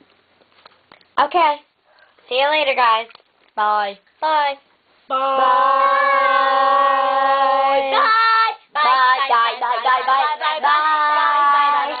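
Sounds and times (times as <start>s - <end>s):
girl singing: 5.5s - 12.0s.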